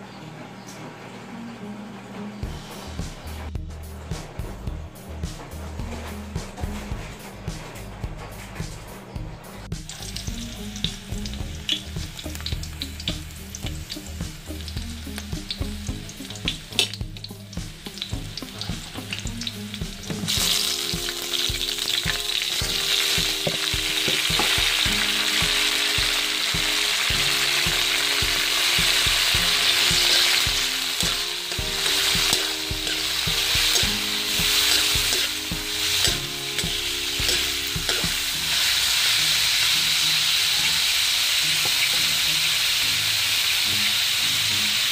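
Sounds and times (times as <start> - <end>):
loud steady sizzle: 2.4 - 44.9
onions frying in oil: 9.7 - 44.9
spatula scraping wok: 15.8 - 44.2.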